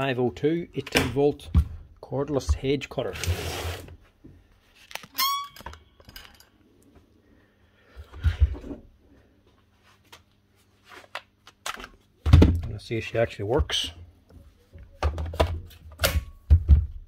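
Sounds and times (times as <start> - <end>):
short squeak: 5.1 - 5.6.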